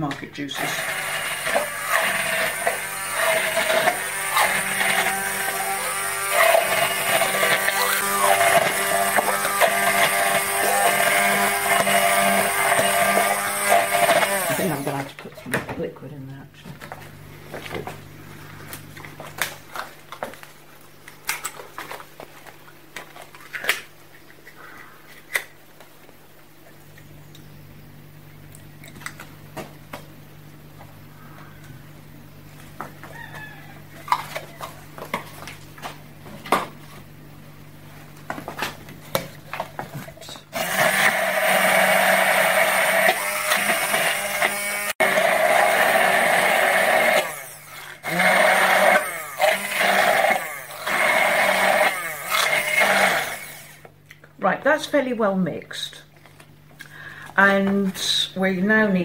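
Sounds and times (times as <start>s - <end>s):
stick blender motor hum: 0.6s - 15.2s, 39.1s - 53.9s
steady low hum: 1.4s - 40.6s.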